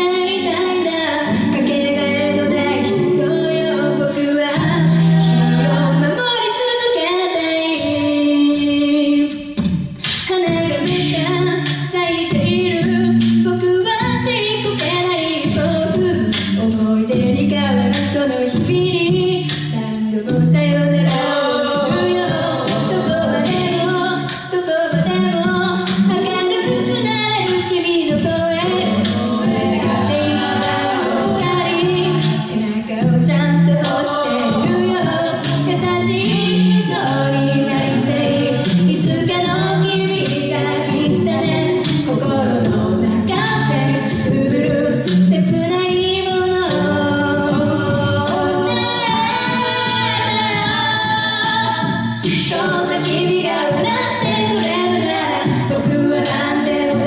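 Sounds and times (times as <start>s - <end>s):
backing vocal harmonies: 0.0s - 57.0s
vocal percussion: 0.0s - 57.0s
woman singing lead: 0.0s - 57.0s.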